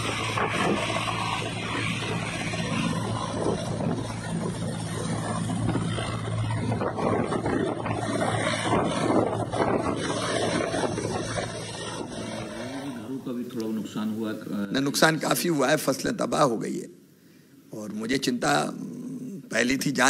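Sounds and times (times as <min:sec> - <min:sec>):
helicopter engine and rotor: 0:00.0 - 0:13.2.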